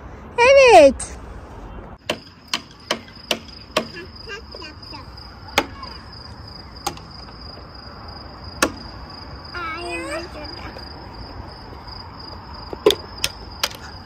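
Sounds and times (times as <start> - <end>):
sharp knocks: 2.0 - 4.0, 6.8 - 7.1, 8.6 - 8.9
cricket chirring: 2.0 - 14.0.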